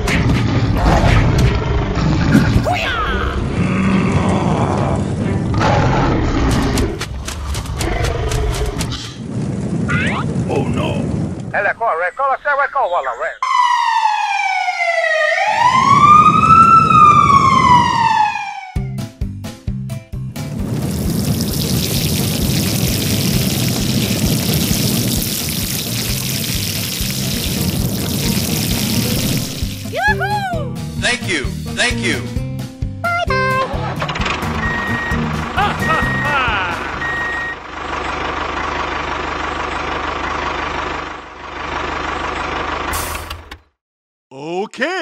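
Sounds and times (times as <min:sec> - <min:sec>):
water spraying from hose nozzle: 0:20.6 - 0:30.0
background music: 0:25.3 - 0:37.2
truck engine chugging: 0:33.8 - 0:43.5
high beep tone: 0:34.6 - 0:36.4, 0:37.0 - 0:37.6.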